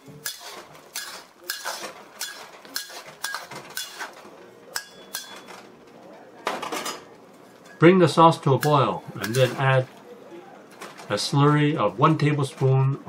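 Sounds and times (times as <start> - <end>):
metal spatula scraping a wok: 0.0 - 4.2, 9.2 - 9.6.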